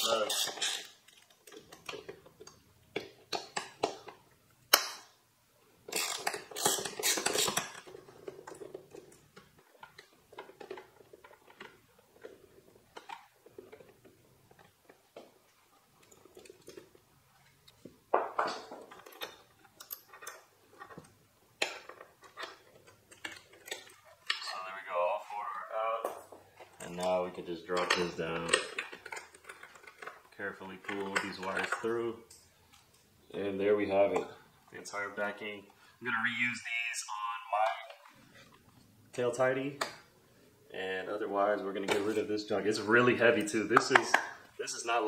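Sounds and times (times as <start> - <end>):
metal hand tool clicking on bolts: 5.9 - 7.8.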